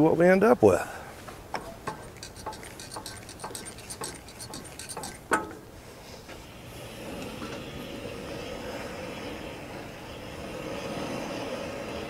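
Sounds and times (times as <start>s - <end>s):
hand knocking on metal: 1.6s - 5.6s.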